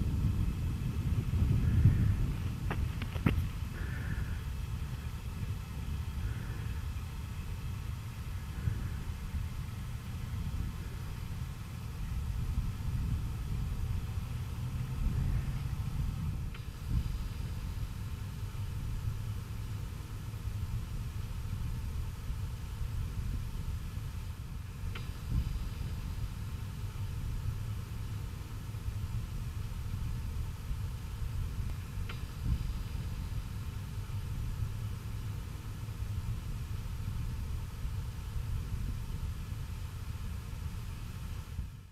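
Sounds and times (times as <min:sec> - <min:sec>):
wind buffeting microphone: 0:00.0 - 0:27.8, 0:28.9 - 0:41.8
low ambient rumble: 0:00.0 - 0:41.9.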